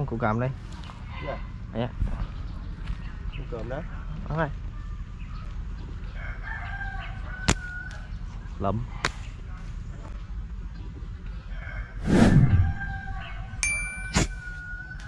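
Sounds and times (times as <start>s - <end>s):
rooster crowing: 6.2s - 8.0s, 11.5s - 13.6s.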